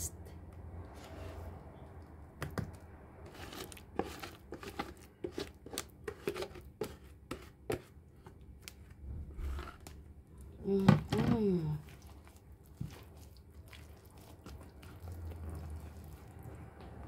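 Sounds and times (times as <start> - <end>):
whisk scraping plastic bowl: 3.2 - 7.9.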